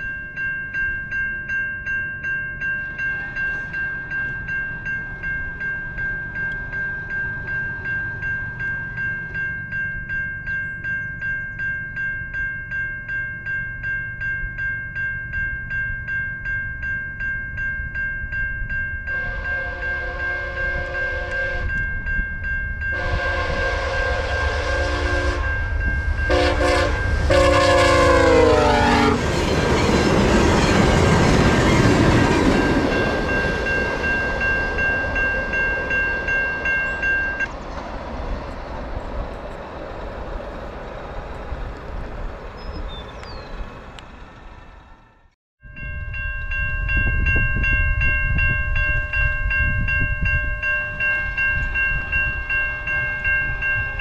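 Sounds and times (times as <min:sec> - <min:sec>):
level-crossing bell ringing: 0:00.0 - 0:23.3, 0:24.4 - 0:37.5, 0:45.6 - 0:54.0
passing train rumble: 0:00.0 - 0:54.0
train horn blasts: 0:19.1 - 0:21.9, 0:22.9 - 0:29.3.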